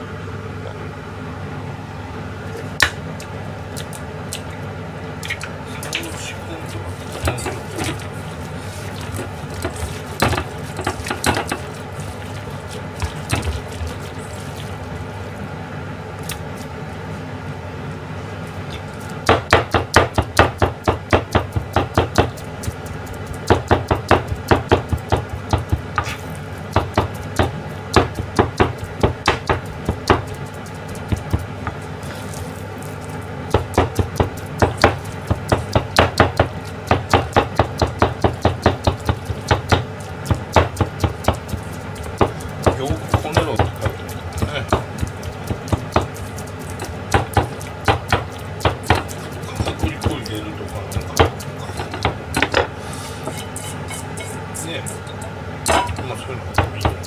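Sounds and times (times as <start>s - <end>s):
knife chopping on plastic board: 9.0s - 11.7s, 19.2s - 31.8s, 33.5s - 52.7s, 56.5s - 57.0s.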